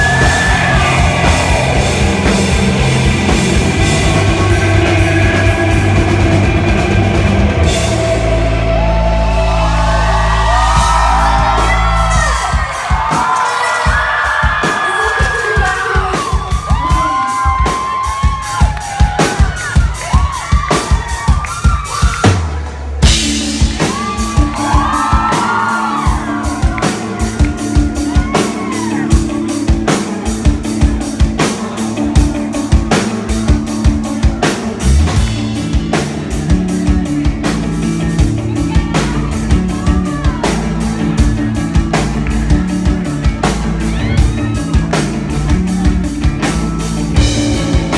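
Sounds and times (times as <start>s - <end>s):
sustained guitar tone: 0.0s - 12.0s
live rock band playing: 0.0s - 47.9s
steady drum beat: 0.0s - 47.9s.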